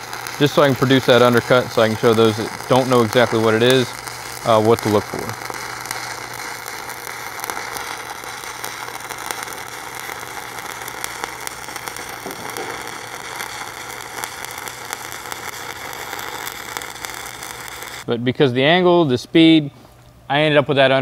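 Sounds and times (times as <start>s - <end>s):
welding arc crackling and popping: 0.0s - 18.1s
steady low hum: 0.0s - 21.0s.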